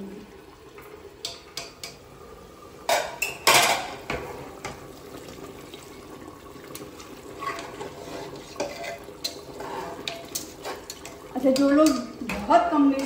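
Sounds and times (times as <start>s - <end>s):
metal utensils clanking on a pot: 1.2s - 2.1s, 2.9s - 4.9s, 7.0s - 13.0s
stirring scrapes and clinks: 7.0s - 13.0s.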